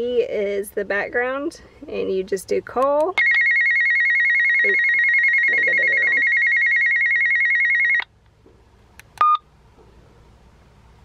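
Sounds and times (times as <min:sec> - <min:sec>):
radio warbling call tone: 0:03.2 - 0:08.0.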